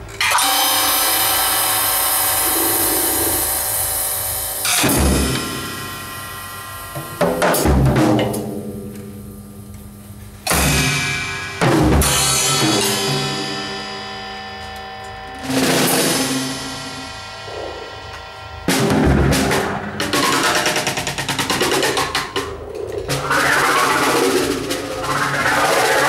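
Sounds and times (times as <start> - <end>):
cymbal crashes: 0.0 - 22.1.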